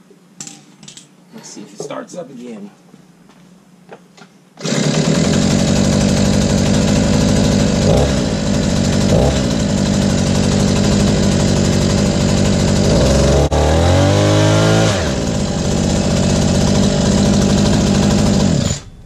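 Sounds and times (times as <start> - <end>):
scooter engine running: 4.6 - 19.0.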